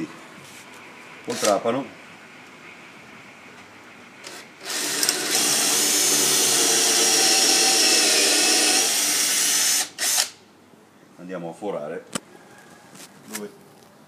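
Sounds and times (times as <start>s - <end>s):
cordless drill boring into wood: 1.3s - 1.6s, 4.2s - 10.4s.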